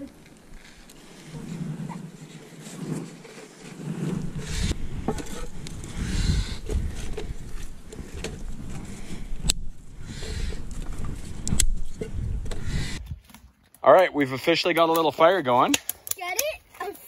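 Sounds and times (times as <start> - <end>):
wind rumbling on microphone: 0.0 - 13.2
microphone handling noise: 0.0 - 13.3
kindling crackling: 0.0 - 13.8.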